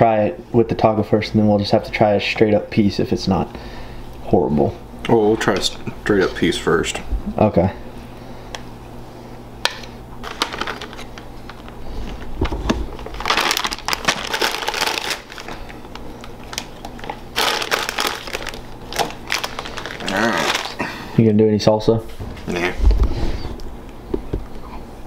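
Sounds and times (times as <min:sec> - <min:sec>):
plastic bags crinkling: 0:10.2 - 0:20.9.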